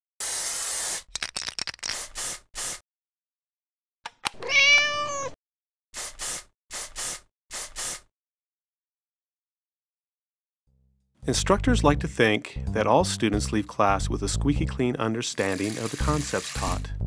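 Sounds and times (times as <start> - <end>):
cat meowing: 4.4 - 5.4.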